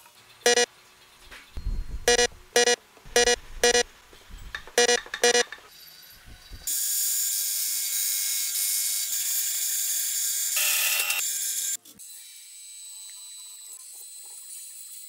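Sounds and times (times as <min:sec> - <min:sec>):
short electronic beeps: 0:00.5 - 0:00.7, 0:01.6 - 0:03.9, 0:04.8 - 0:05.5.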